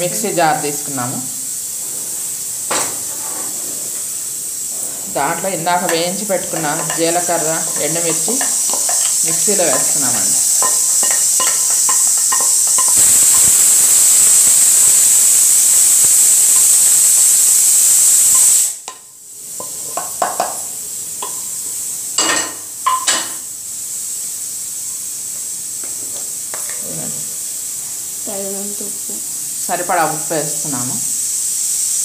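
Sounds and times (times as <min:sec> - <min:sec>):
faint steady hiss: 0:00.0 - 0:32.0
oil sizzling in a pan: 0:00.0 - 0:32.0
spoon scraping metal pan: 0:04.9 - 0:13.5.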